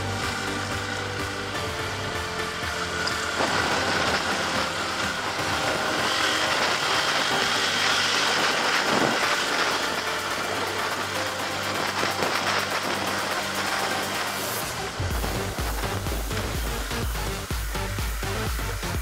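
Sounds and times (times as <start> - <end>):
dirt bike engine running: 0.0 - 19.0
steady rush of noise: 0.0 - 19.0.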